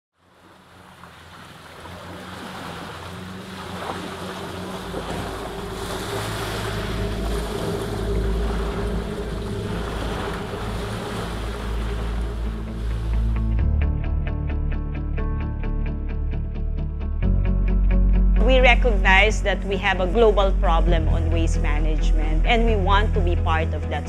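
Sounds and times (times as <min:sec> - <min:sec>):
ocean waves splashing against rocks: 0:00.2 - 0:13.4
low steady hum: 0:02.9 - 0:13.4.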